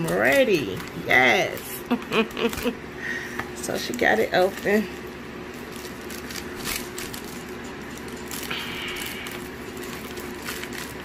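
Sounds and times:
plastic bag rustling and crinkling: 3.7s - 11.0s.

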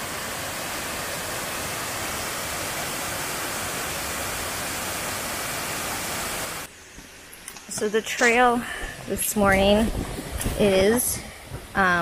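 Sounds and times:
waterfall rushing: 0.0s - 6.7s.

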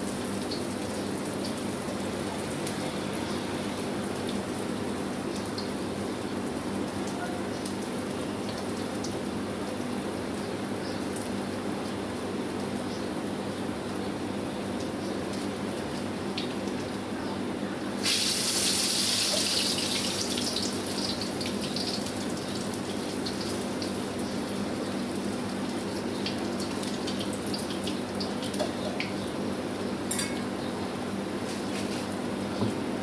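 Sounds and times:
burner hissing: 18.0s - 20.4s.

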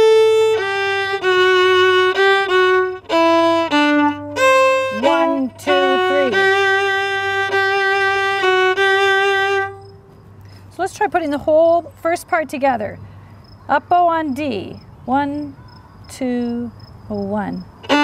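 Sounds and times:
solo fiddle playing slowly: 0.0s - 10.2s, 17.8s - 18.0s.

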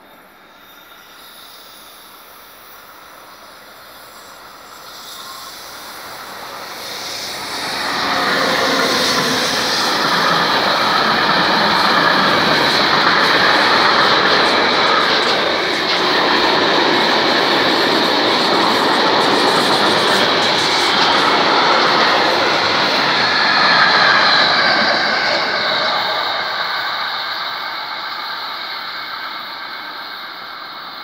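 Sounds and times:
freight train passing: 0.0s - 31.0s
wheels rumbling on rails: 5.2s - 26.8s.

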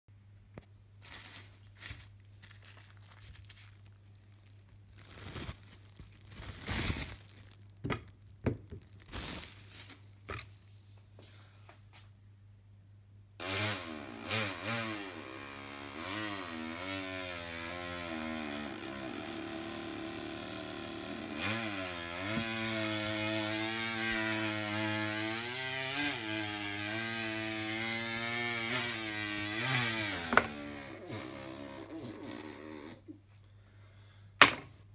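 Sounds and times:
person imitating a chainsaw: 13.4s - 33.1s.

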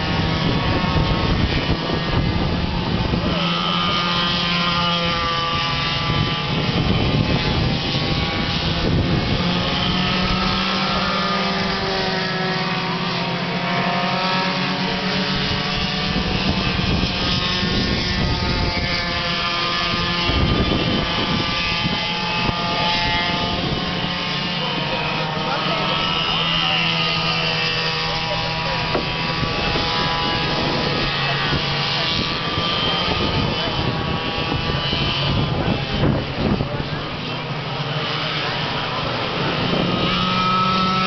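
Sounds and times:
go-kart engines racing: 0.0s - 41.0s.

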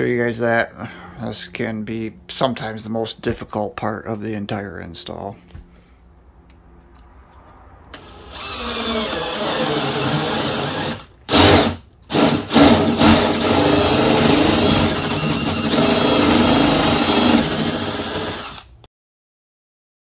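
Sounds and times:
cordless drill boring wood: 8.0s - 18.8s.

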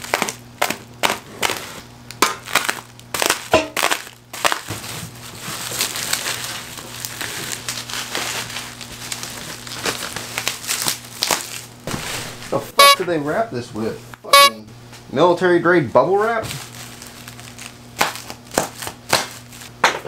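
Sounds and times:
bubble wrap crinkling: 0.0s - 12.6s, 16.2s - 19.8s.

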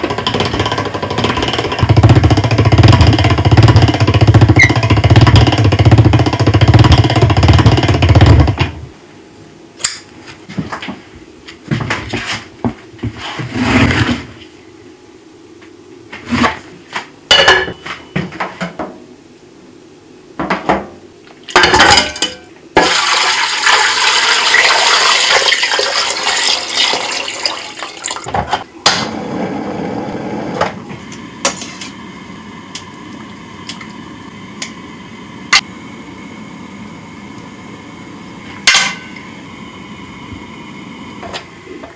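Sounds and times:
pot boiling hum: 0.0s - 41.9s
water pouring into pot: 22.8s - 28.3s.

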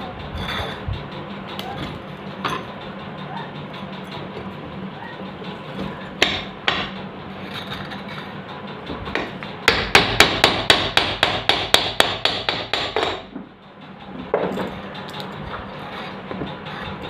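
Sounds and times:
hammer striking metal: 5.4s - 7.0s, 9.0s - 13.5s.

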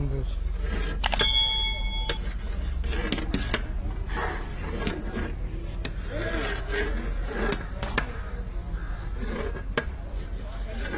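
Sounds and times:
spatula scraping rice in pot: 2.4s - 10.9s.

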